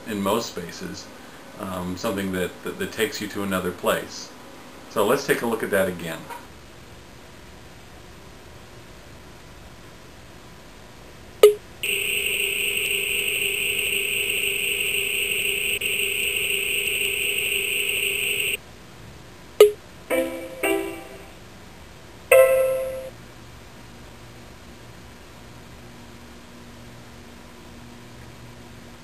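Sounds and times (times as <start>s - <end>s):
buzzy electronic tone: 11.8s - 18.6s
short ringing notes: 20.1s - 21.4s, 22.3s - 23.2s.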